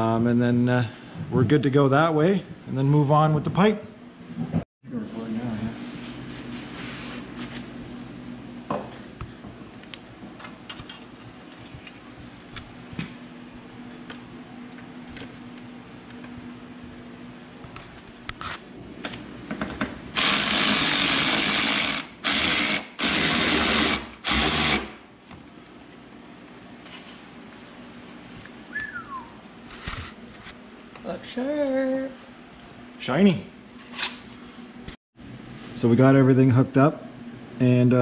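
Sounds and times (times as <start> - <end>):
power ratchet running: 20.2 - 25.0.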